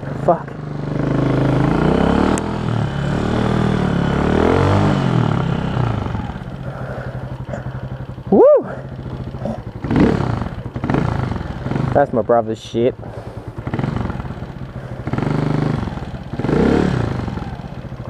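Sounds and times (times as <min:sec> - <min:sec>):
dirt bike engine revving: 0:00.0 - 0:18.0.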